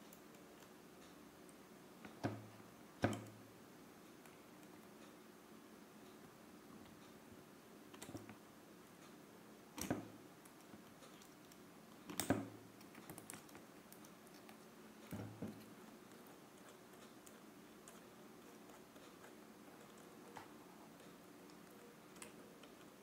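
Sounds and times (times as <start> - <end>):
small parts clicking and tapping: 9.8 - 23.0.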